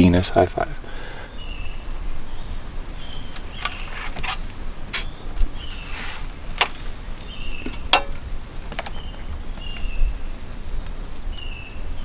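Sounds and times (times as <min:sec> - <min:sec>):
sharp clicks: 0:08.7 - 0:09.9.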